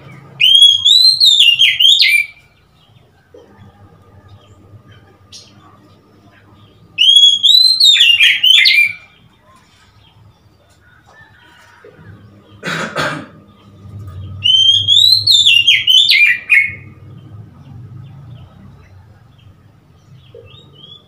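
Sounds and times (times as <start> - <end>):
bird whistling song: 0.1 - 2.6, 7.0 - 9.2, 14.1 - 17.0, 20.4 - 21.0.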